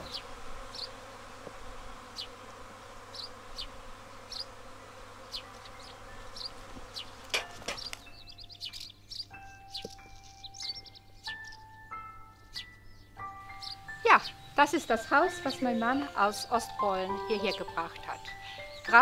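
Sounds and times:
bird chirping: 0.0s - 1.2s, 2.1s - 2.4s, 3.1s - 19.0s
honeybees buzzing: 0.0s - 19.0s
light chiming music: 4.8s - 19.0s.

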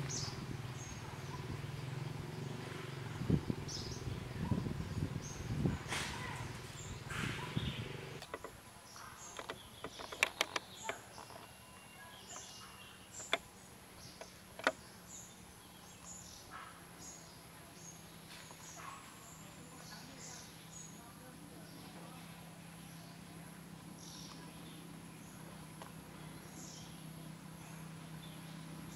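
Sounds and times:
bird chirps: 0.0s - 22.0s
high insect hum: 0.0s - 28.9s.

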